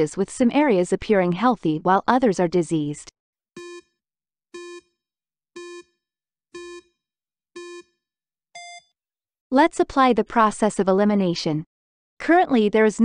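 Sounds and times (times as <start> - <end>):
short timer beeps: 8.6 - 8.9.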